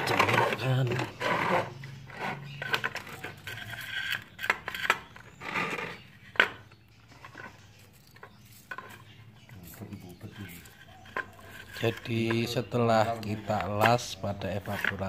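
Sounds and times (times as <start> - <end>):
rubbing sounds: 0.0 - 15.0.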